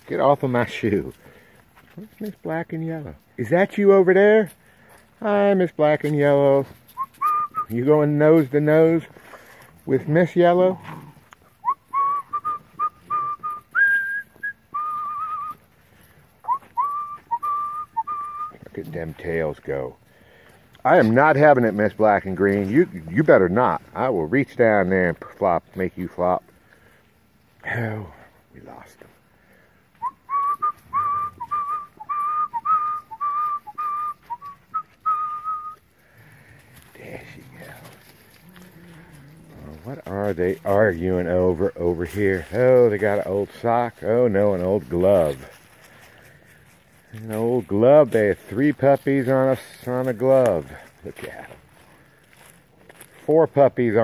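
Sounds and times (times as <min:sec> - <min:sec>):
person whistling a tune: 0:07.0 - 0:07.7, 0:11.6 - 0:15.6, 0:16.4 - 0:18.6, 0:30.0 - 0:35.8.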